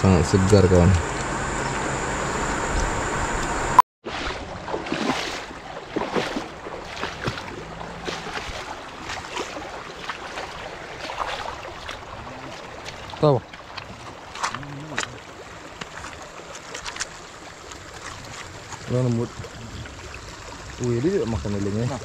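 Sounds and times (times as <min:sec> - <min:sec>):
steady rushing noise: 0:00.0 - 0:03.8
hands splashing river water: 0:04.1 - 0:20.6.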